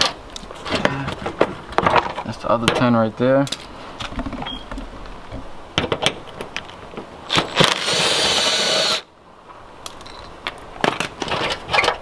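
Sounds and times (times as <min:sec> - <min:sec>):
clatter of metal and plastic parts: 0:10.0 - 0:12.0.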